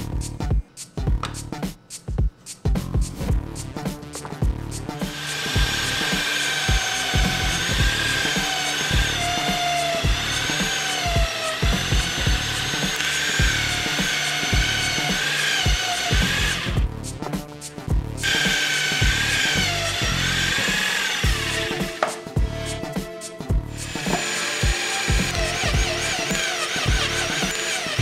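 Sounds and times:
drill press whining: 5.0 - 16.8, 18.2 - 22.2, 23.7 - 28.0.

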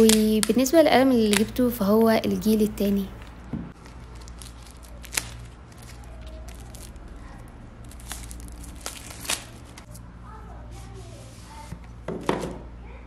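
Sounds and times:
plastic film crackling: 0.0 - 10.0.

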